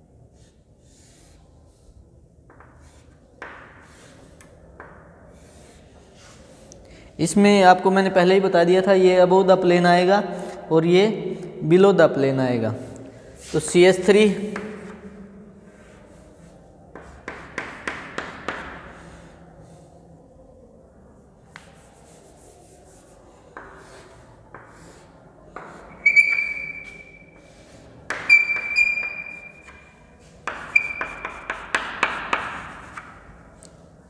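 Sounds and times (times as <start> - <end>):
chalk scraping and tapping on chalkboard: 0.4 - 6.8, 13.4 - 15.1, 15.7 - 19.9, 21.5 - 33.8
chalk squeaking: 2.6 - 4.5, 21.5 - 33.2.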